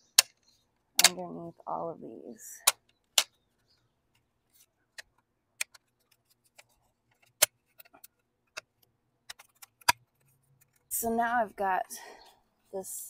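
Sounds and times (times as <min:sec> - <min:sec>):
plastic clips clicking and snapping: 0:00.0 - 0:01.3, 0:02.6 - 0:03.4, 0:04.9 - 0:10.8.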